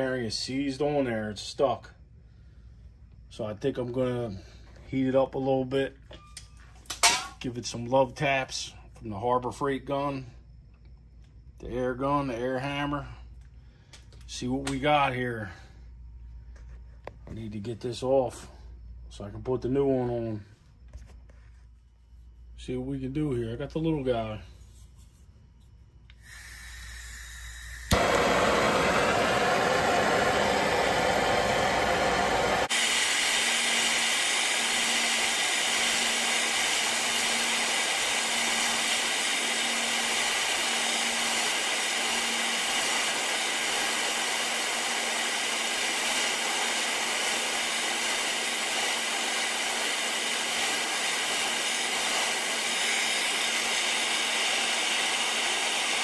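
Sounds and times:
gas torch flame hissing: 0:26.1 - 0:56.0.

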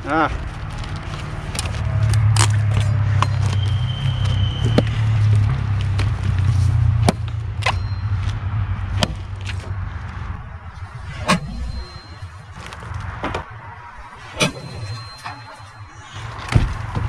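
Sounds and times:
steady low rumble: 0:08.6 - 0:17.0.

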